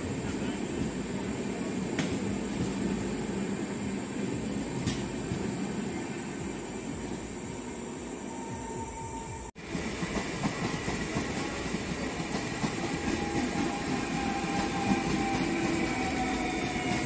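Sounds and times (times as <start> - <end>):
train passing at speed: 0.0 - 17.0.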